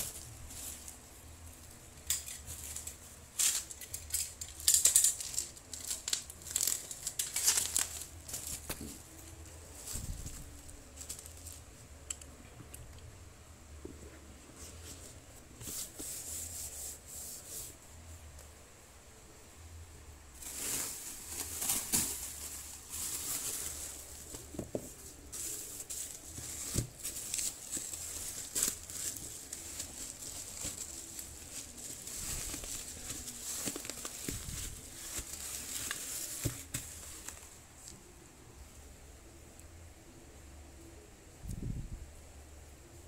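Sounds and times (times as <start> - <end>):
bubble wrap crinkling: 0.0 - 12.3, 20.3 - 38.0.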